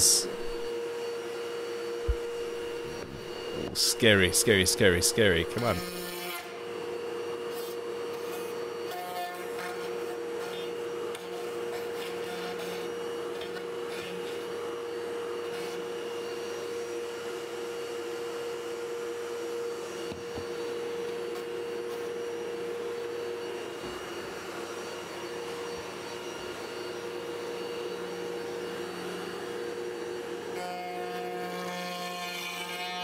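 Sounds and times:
router bit cutting wood: 0.0s - 0.7s, 2.1s - 6.5s
router humming: 0.0s - 0.8s, 2.0s - 6.2s.

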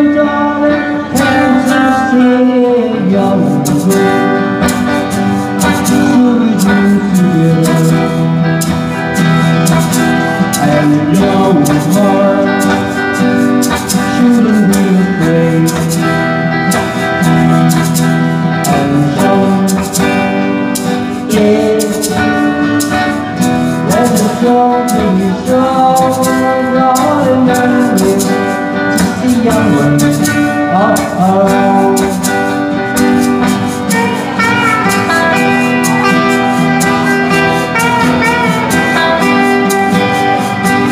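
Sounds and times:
live pop band with guitars: 0.0s - 40.9s
person singing: 0.0s - 40.9s.

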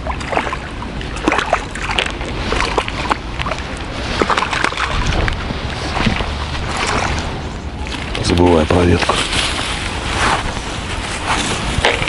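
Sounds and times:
fish splashing at water surface: 0.0s - 8.2s.

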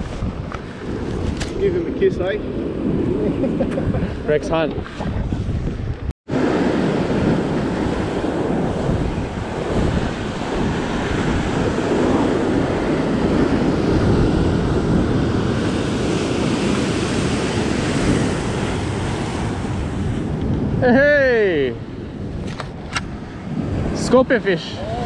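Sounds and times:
wind buffeting microphone: 0.0s - 25.0s
surf washing against rocks: 6.3s - 21.7s.

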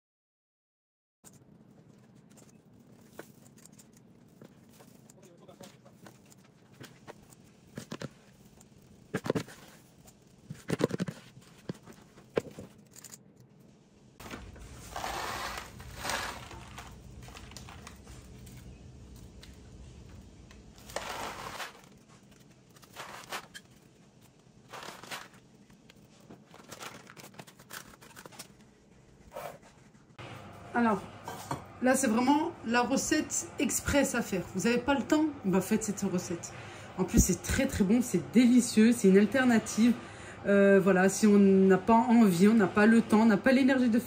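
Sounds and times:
paper muffin cases crinkling: 1.3s - 13.4s, 14.2s - 19.5s, 20.6s - 29.9s.

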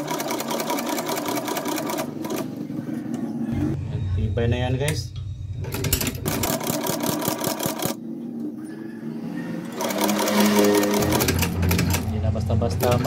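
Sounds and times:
sewing machine stitching: 0.0s - 2.5s, 5.7s - 8.0s, 9.7s - 12.1s, 12.7s - 13.0s.

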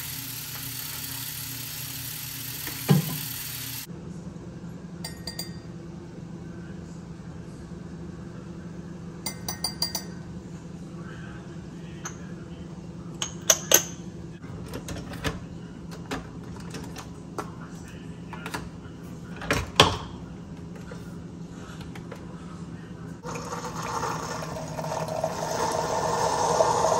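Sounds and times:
spoon clinking on glass: 5.0s - 5.7s, 9.3s - 10.2s.

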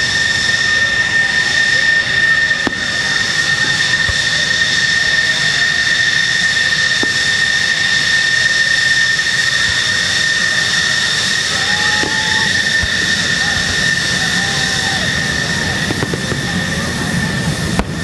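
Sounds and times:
jet engines idling: 0.0s - 18.0s.

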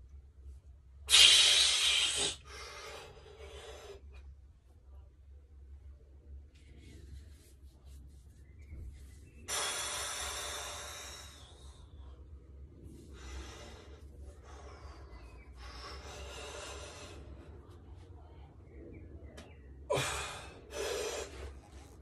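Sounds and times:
man exhaling forcefully: 1.1s - 2.9s, 9.5s - 11.3s.

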